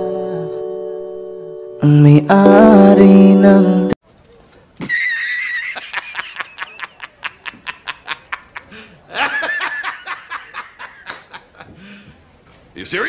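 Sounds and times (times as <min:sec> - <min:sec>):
man laughing heartily: 0:04.8 - 0:11.8.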